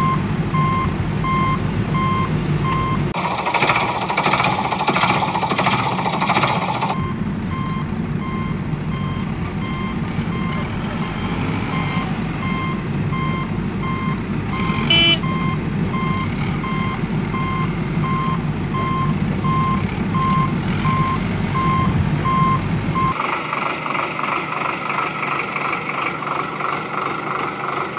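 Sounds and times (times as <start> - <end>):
vehicle reversing alarm beeps: 0.0 - 23.2
low engine rumble: 0.0 - 27.9
rhythmic mechanical sound: 3.2 - 7.0.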